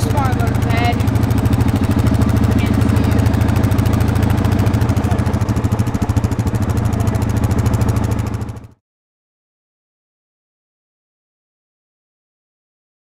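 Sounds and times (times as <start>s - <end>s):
quad engine idling: 0.0s - 8.8s.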